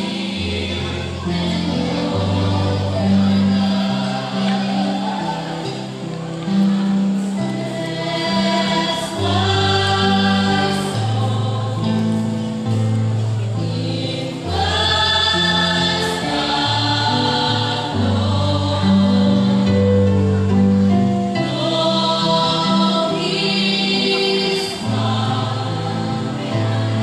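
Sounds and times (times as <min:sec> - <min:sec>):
choir singing gospel song: 0:00.0 - 0:27.0.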